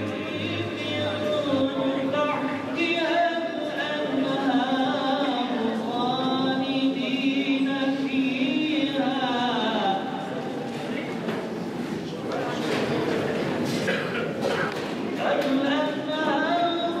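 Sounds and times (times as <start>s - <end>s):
mournful chanted singing: 0.0s - 10.3s.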